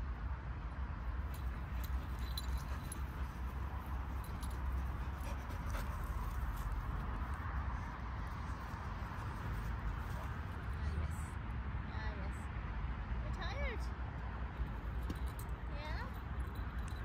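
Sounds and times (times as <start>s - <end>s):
collar tags jingling: 1.1s - 11.0s, 14.6s - 17.0s.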